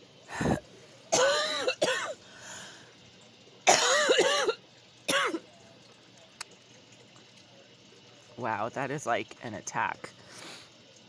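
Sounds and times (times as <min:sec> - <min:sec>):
person coughing: 0:00.4 - 0:02.2, 0:03.7 - 0:05.4.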